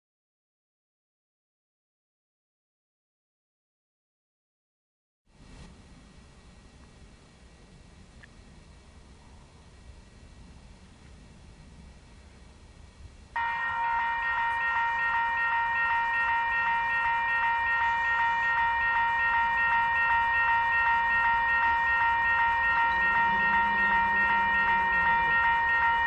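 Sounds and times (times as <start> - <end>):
railroad crossing bell ringing: 13.4 - 26.0.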